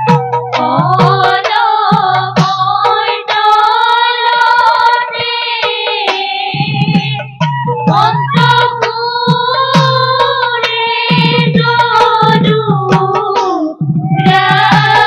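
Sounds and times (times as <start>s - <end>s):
low percussion beat: 0.0s - 3.1s
woman singing through microphone: 0.6s - 15.0s.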